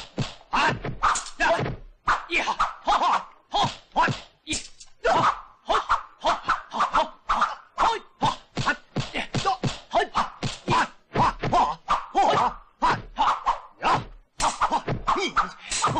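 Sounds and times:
punch and block hits: 0:00.0 - 0:01.9, 0:03.6 - 0:04.7, 0:08.5 - 0:12.6, 0:13.9 - 0:15.9
fighters shouting: 0:00.5 - 0:15.9.

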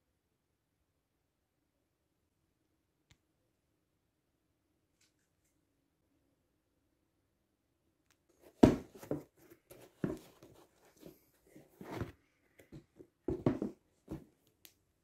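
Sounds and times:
shoes knocking on cardboard box: 0:08.4 - 0:14.3.

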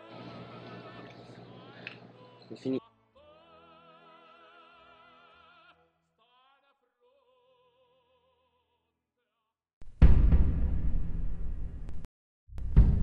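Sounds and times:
faint operatic singing: 0:00.0 - 0:08.8
sudden loud hit: 0:09.8 - 0:13.0.

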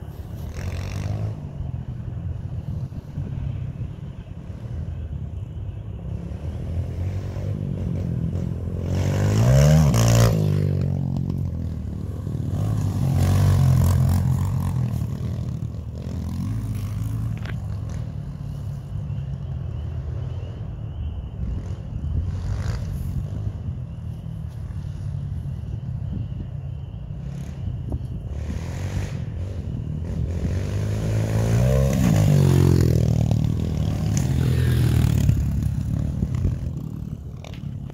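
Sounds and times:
dirt bike engine revving: 0:06.2 - 0:18.2, 0:28.3 - 0:37.6.

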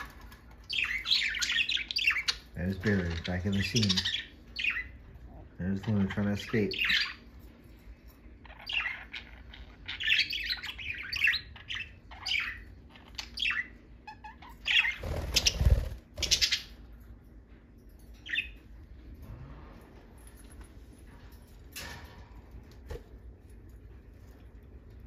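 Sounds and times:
budgerigars chirping and squawking: 0:00.0 - 0:07.5, 0:08.3 - 0:17.0, 0:18.2 - 0:18.7
wings flapping: 0:15.0 - 0:16.4.

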